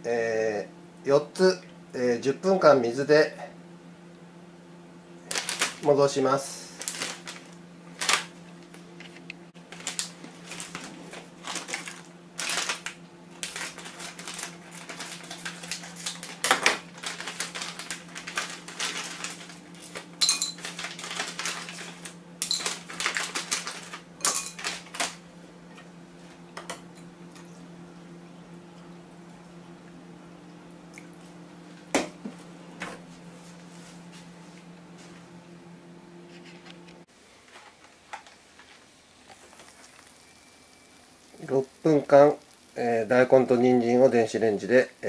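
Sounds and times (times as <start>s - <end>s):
steady low hum: 0.0s - 45.0s
plastic packet crinkling: 5.3s - 5.9s, 6.7s - 8.8s, 9.6s - 25.2s, 38.1s - 42.8s.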